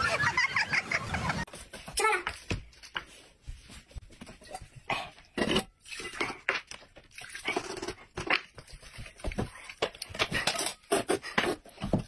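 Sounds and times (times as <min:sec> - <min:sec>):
person eating noodles: 0:04.9 - 0:09.0.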